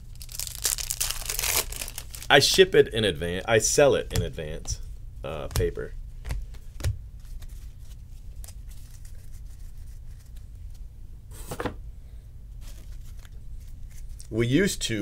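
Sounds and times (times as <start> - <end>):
low steady hum: 0.0 - 15.0
cards clicking and rustling: 5.4 - 9.4.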